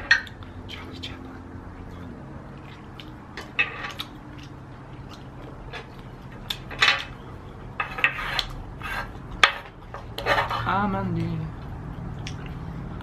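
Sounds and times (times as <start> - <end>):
utensils scraping griddle plate: 3.4 - 4.0, 7.8 - 10.8.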